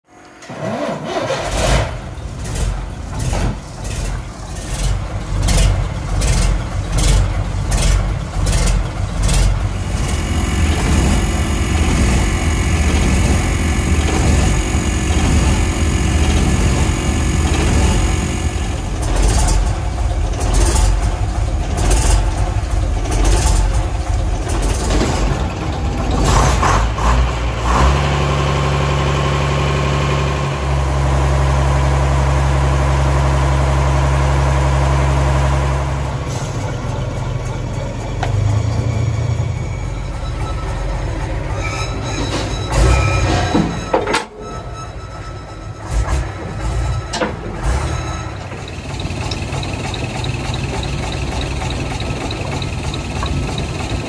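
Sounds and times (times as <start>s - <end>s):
diesel engine starting and idling: 0.1s - 54.0s.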